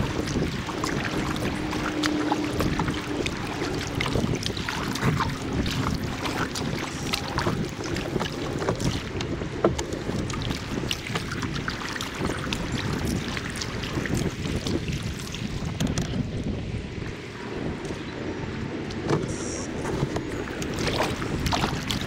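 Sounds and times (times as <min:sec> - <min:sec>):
water dripping from paddle: 0:00.0 - 0:15.5
paddle strokes splashing water: 0:00.0 - 0:16.3, 0:19.7 - 0:22.0
wind buffeting microphone: 0:00.0 - 0:22.0.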